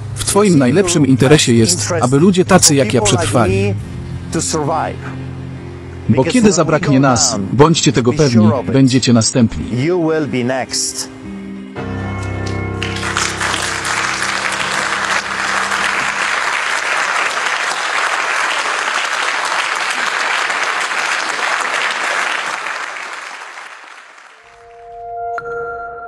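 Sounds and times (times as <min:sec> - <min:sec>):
audience applauding: 0:12.4 - 0:24.7.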